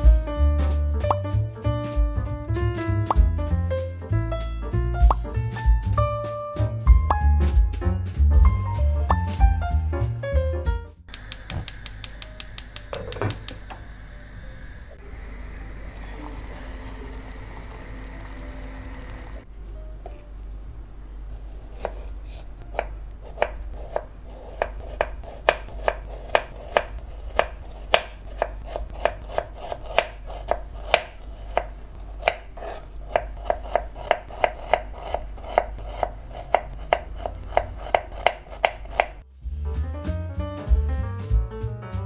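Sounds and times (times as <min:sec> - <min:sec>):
piano music: 0:00.0 - 0:11.1, 0:15.5 - 0:21.0, 0:39.5 - 0:42.0
knife slicing onion on board: 0:21.7 - 0:39.2.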